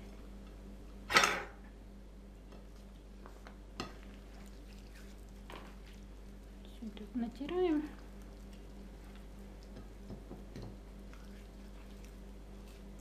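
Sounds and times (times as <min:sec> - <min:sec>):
kitchen handling noise: 0:01.1 - 0:01.6.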